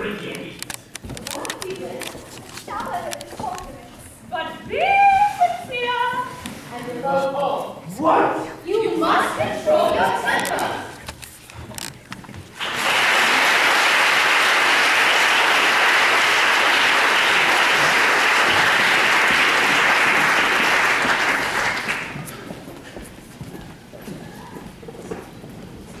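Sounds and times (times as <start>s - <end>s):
audience applauding: 12.6s - 22.5s.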